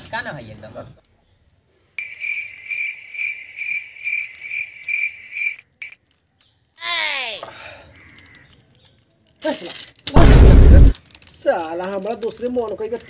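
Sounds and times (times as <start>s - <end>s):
cricket chirping: 1.2s - 6.8s.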